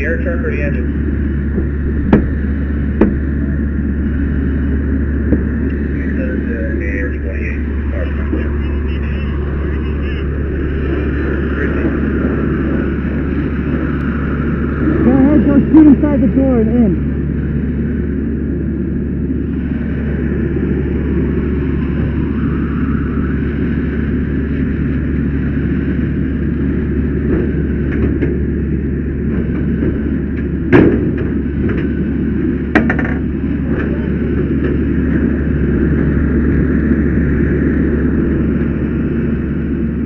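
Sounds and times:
low hum: 0.0s - 40.0s
machinery rumble and hiss: 0.0s - 40.0s
sharp knocks: 1.6s - 2.4s, 3.0s - 3.3s, 32.7s - 33.2s.

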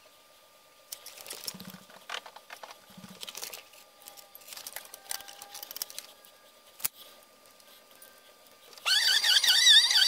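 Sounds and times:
metal parts clicking and clinking: 3.2s - 6.1s.

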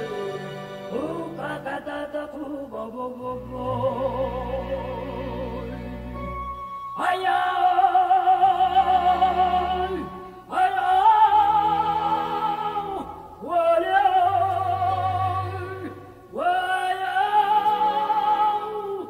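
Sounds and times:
soprano singing with vibrato: 0.0s - 19.0s
low orchestral notes: 3.4s - 7.6s.

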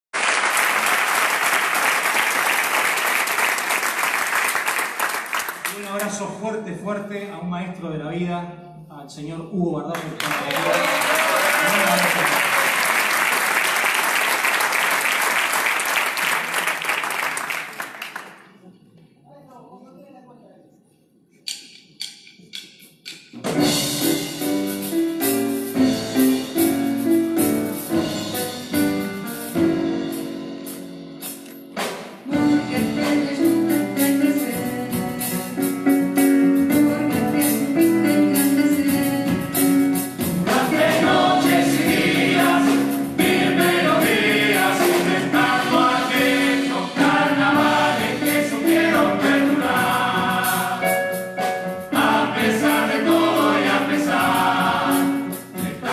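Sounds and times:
percussion strokes: 21.4s - 32.4s
chorus singing together: 40.2s - 55.9s.

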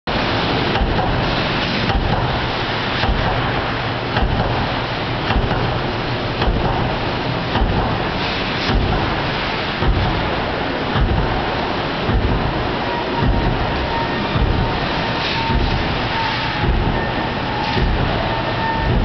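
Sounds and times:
stamping presses machinery din: 0.7s - 19.0s
dull press thumps: 4.2s - 4.6s, 5.3s - 5.8s, 6.4s - 9.1s, 9.8s - 10.3s, 10.9s - 14.9s, 16.6s - 17.0s.

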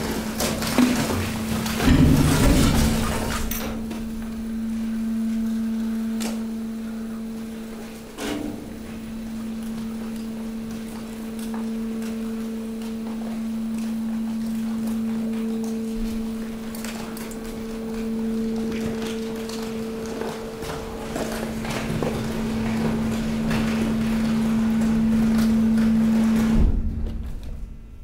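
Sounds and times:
loud clatter: 0.0s - 4.3s
compactor pump humming: 0.0s - 28.0s
sharp knocks: 0.8s - 4.3s.

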